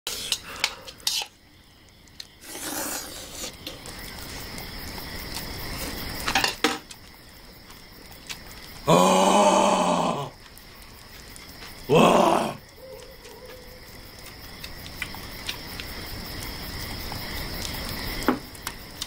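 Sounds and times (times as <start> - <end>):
slurping noodles: 2.4 - 3.8.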